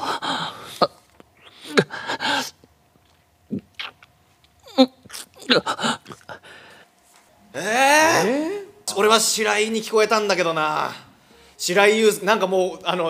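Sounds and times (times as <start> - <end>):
kiss sounds: 3.5 - 4.1
men breathing and gasping: 5.5 - 7.0.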